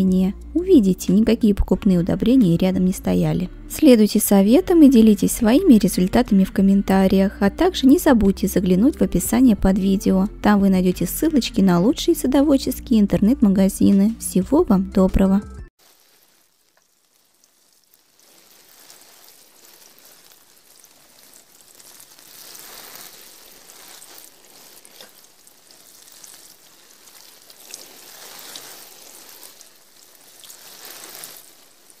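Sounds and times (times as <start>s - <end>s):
rain falling: 15.8s - 32.0s.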